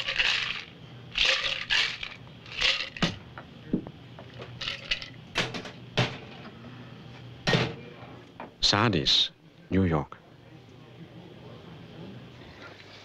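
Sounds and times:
ice rattling in shaker: 0:00.0 - 0:03.1, 0:04.6 - 0:05.2.

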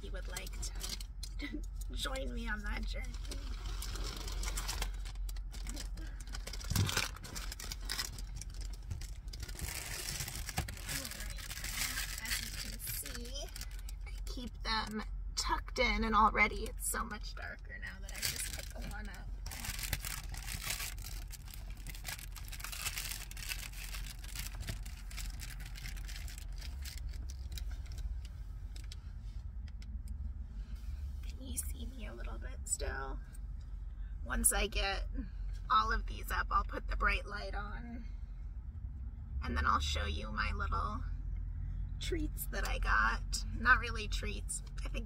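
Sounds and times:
steady low rumble: 0:00.0 - 0:45.0
rustling and scraping: 0:02.0 - 0:14.4
rustling of window covers: 0:03.1 - 0:13.9, 0:18.1 - 0:29.4.

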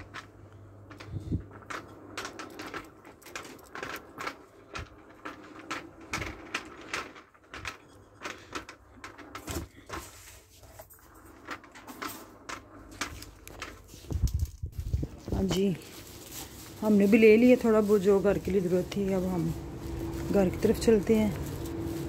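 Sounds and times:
handling rustle: 0:12.8 - 0:22.0
footsteps: 0:13.8 - 0:22.0.

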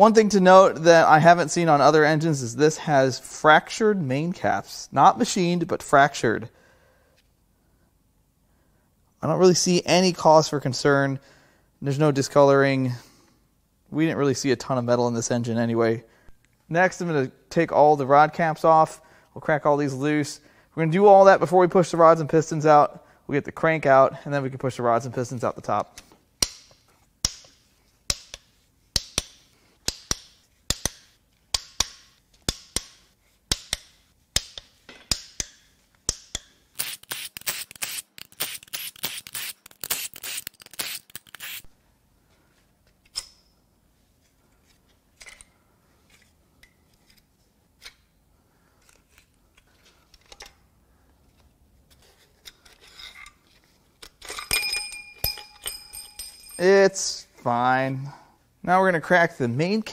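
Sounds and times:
metal parts handled: 0:44.6 - 0:48.1, 0:51.3 - 0:56.7
ringing metal clink: 0:54.2 - 0:56.8.

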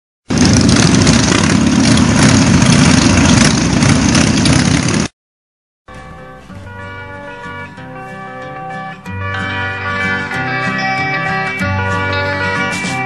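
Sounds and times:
motorcycle engine running rough: 0:00.3 - 0:05.1
slide guitar rock music: 0:05.9 - 0:13.0.

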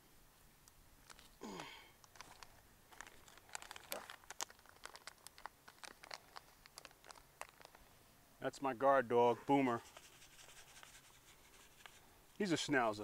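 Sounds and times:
plastic crinkling and clicking: 0:00.6 - 0:01.4, 0:02.0 - 0:07.9.

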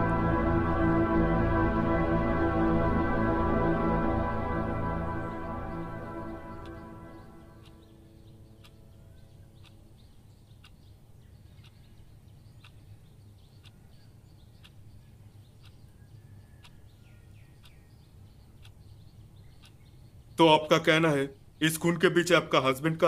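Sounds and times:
music: 0:00.0 - 0:09.3
low hum: 0:00.0 - 0:10.4
light ticking: 0:05.0 - 0:21.9
small birds chirping: 0:05.0 - 0:23.0.

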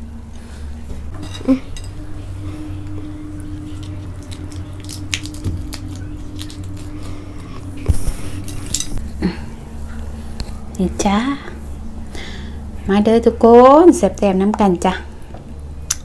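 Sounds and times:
steady low hum: 0:00.0 - 0:16.0
prawn shell cracking: 0:03.8 - 0:07.1.

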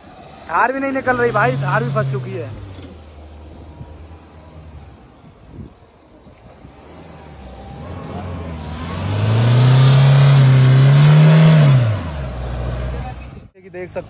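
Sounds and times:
engine revving hard: 0:06.5 - 0:13.2.

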